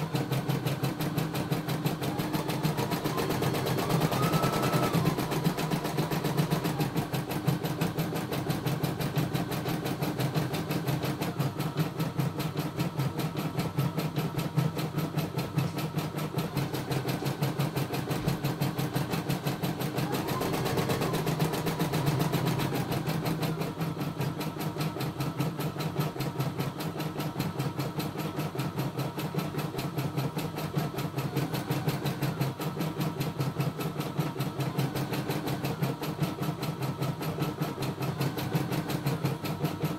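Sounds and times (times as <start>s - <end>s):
embroidery machine stitching: 0.0s - 39.9s
machine whine: 1.4s - 9.6s.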